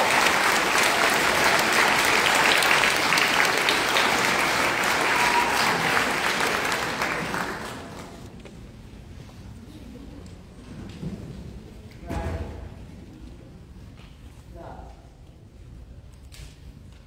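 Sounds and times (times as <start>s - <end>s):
audience applauding: 0.0s - 8.3s.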